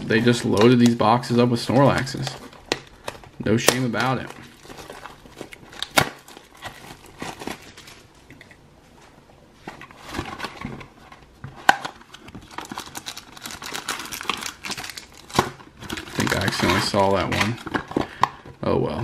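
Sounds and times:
plastic wrapper crinkling: 0:00.0 - 0:08.6, 0:09.8 - 0:18.3.

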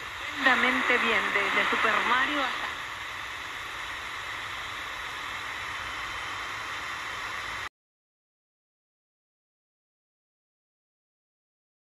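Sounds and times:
radio static hiss: 0:00.0 - 0:07.7.

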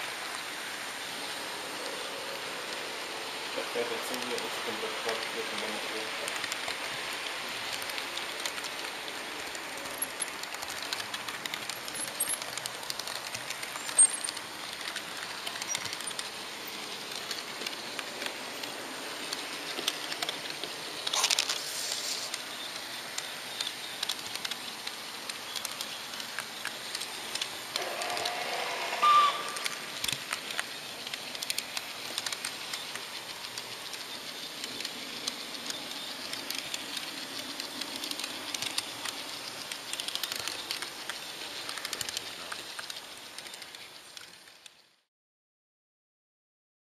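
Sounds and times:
model train running on track: 0:00.0 - 0:45.0
short tone: 0:27.8 - 0:29.6.

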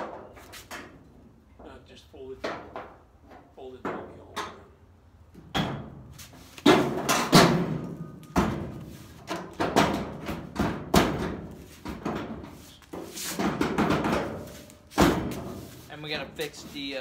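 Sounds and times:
heavy knocks on steel panels: 0:05.4 - 0:15.7.

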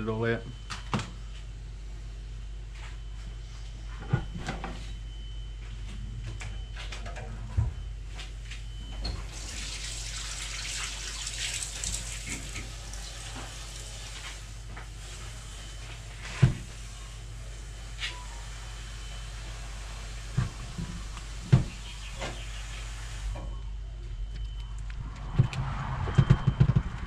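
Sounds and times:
tap water running into sink: 0:09.4 - 0:13.3.

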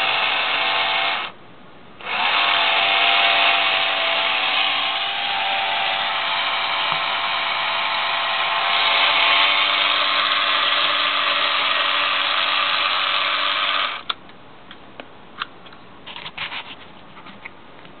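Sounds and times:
electric motor running: 0:02.0 - 0:14.1.

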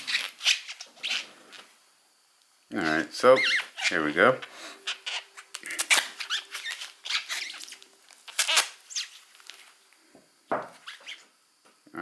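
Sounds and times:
foam rustling and squeaking: 0:00.0 - 0:01.7, 0:02.8 - 0:09.8, 0:10.7 - 0:11.4
knock: 0:10.5 - 0:10.7.

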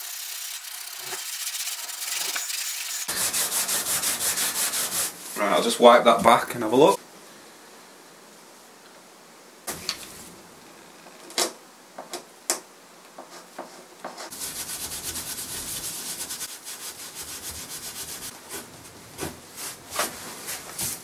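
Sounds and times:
abrasive pad scrubbing wood: 0:03.1 - 0:05.2, 0:14.3 - 0:18.7.

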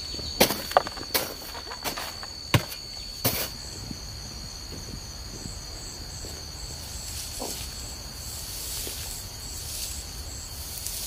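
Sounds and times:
footsteps on dry soil: 0:00.0 - 0:07.2
insects chirring: 0:00.0 - 0:11.0.

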